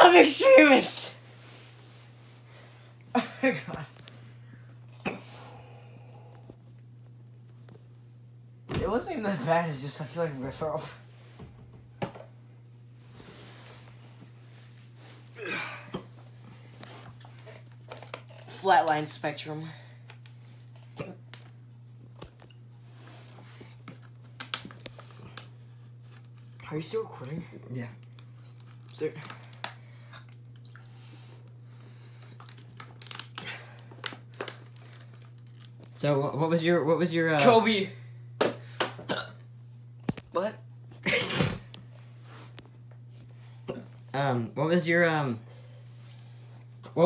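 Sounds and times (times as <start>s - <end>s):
steady low hum: 0.0s - 47.0s
plastic water bottle crinkling: 32.3s - 36.0s.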